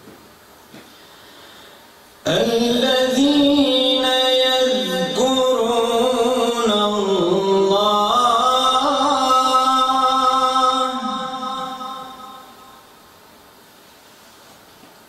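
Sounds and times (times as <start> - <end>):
man chanting melodically: 2.2 - 12.9.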